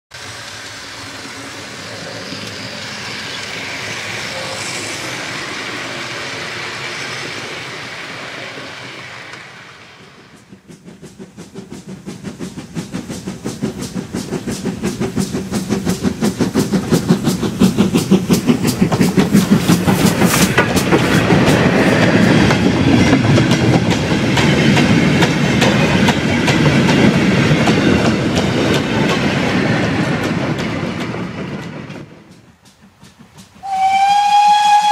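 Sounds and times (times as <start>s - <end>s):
steam locomotive chuffing: 0.1s - 34.9s
wagon wheels clattering on rail: 10.3s - 33.9s.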